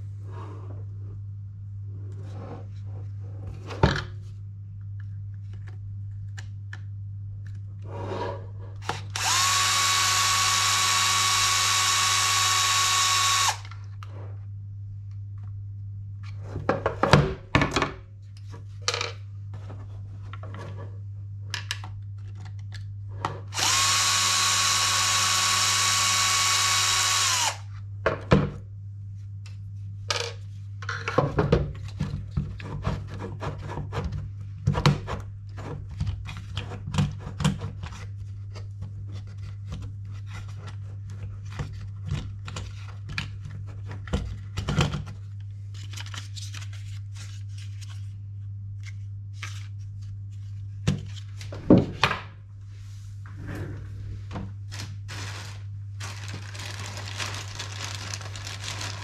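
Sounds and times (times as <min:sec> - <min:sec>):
electric screwdriver running: 0:08.8 - 0:13.7, 0:23.5 - 0:27.7.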